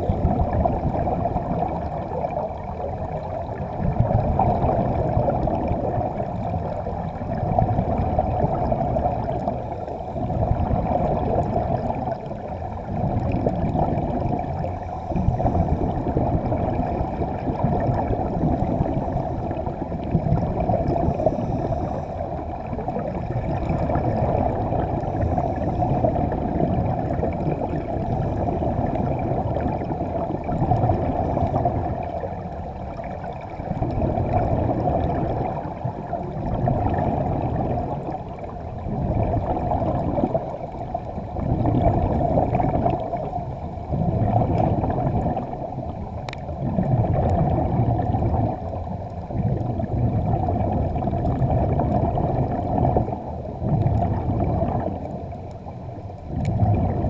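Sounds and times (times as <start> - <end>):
air bubbling underwater: 0.0 - 9.7, 10.3 - 32.3, 41.3 - 43.2, 43.8 - 45.8, 46.6 - 55.2, 56.3 - 57.0.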